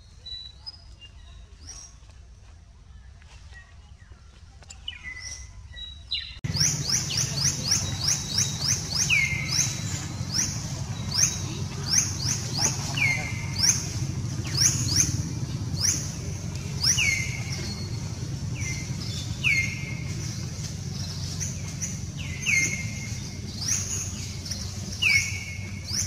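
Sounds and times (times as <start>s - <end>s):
birds chirping: 3.9s - 26.0s
low steady hum: 6.4s - 26.0s.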